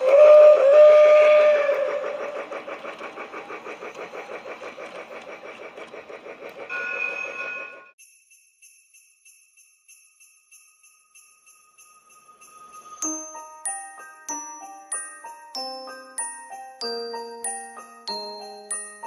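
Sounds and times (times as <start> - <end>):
toy train whistle: 0.0 - 2.4, 6.7 - 7.9
toy train steam chuffing: 0.0 - 8.0, 12.2 - 19.0
sleigh bell jingling: 6.7 - 19.0.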